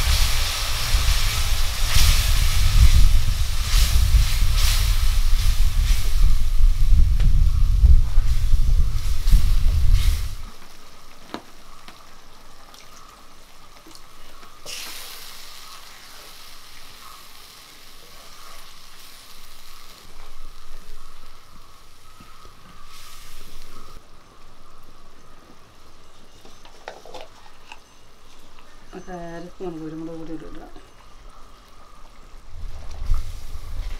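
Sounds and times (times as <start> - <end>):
gravy sizzling in a pan: 8.9 - 24.0.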